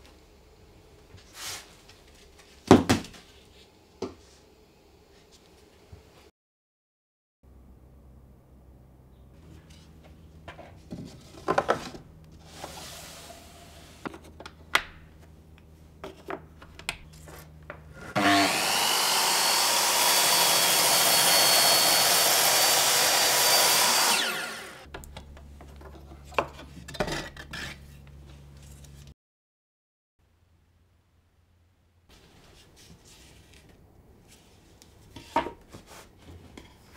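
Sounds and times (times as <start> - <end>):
circular saw cutting wood: 17.9 - 24.9.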